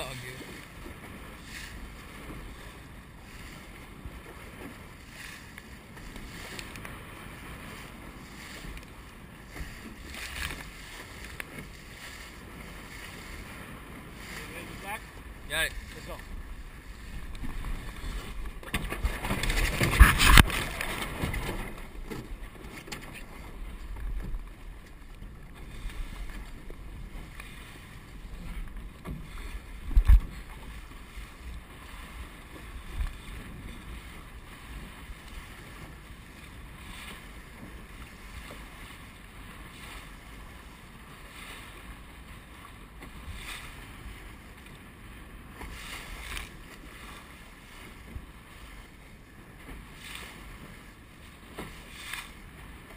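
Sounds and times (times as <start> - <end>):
wind buffeting microphone: 0.0 - 42.4
water rushing along hull: 0.0 - 52.9.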